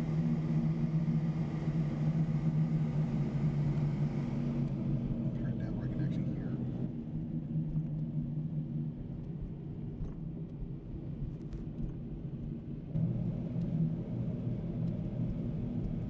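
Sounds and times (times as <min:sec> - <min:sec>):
car engine and road drone: 0:00.0 - 0:16.0.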